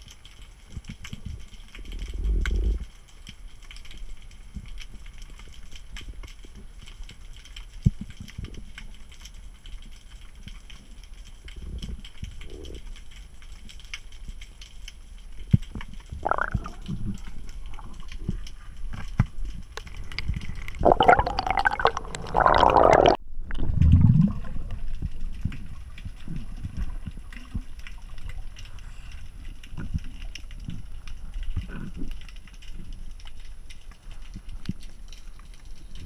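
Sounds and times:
muffled underwater sloshing: 15.6 - 32.6
gurgling water rush: 16.2 - 18.3, 20.8 - 24.8.

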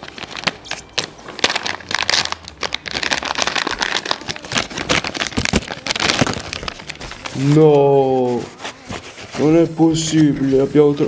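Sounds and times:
wrapper crinkling as torn open: 0.0 - 8.4.

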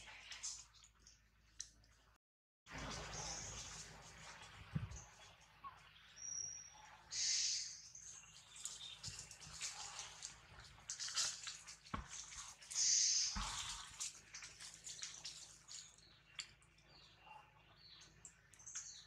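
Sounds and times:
leaves and twigs rustling: 7.9 - 16.6.

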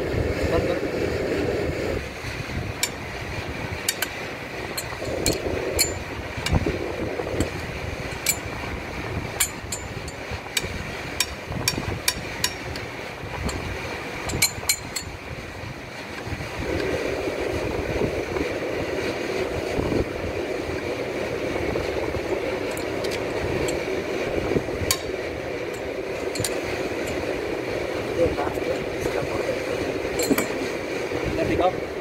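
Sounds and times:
steady rushing noise: 0.0 - 32.0.

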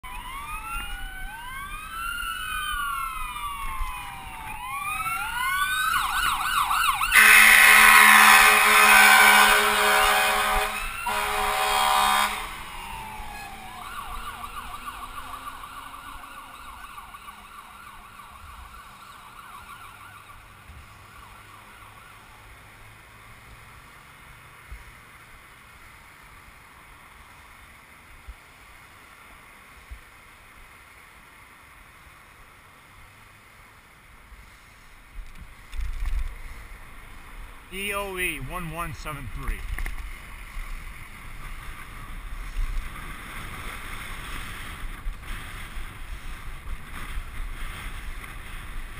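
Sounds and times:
siren yelping: 0.0 - 7.7, 10.1 - 20.4
faint traffic: 0.0 - 48.9
ambulance horn blasts: 7.0 - 12.8
wind noise: 34.9 - 48.9.

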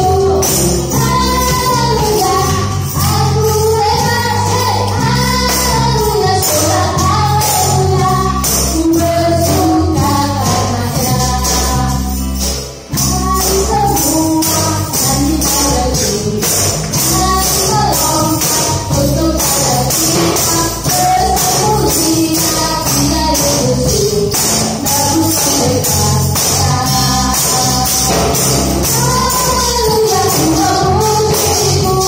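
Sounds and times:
sung worship song: 0.0 - 32.0
tambourines shaken and struck: 0.0 - 32.0.

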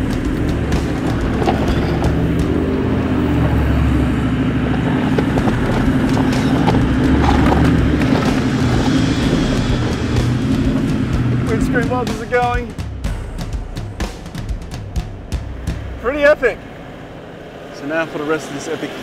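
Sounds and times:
tyres crunching over gravel: 0.0 - 12.8
truck engine working: 0.0 - 19.0.

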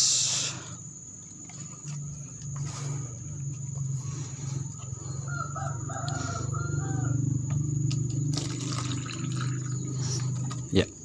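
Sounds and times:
steady low hum: 0.0 - 11.0
rooster crowing: 4.4 - 8.2.

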